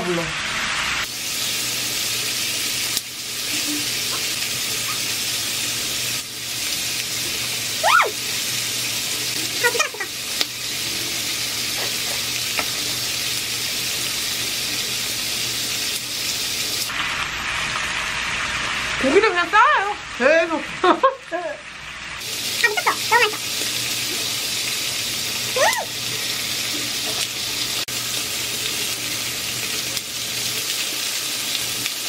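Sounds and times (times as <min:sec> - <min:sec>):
meat sizzling on a grill: 0:00.0 - 0:32.0.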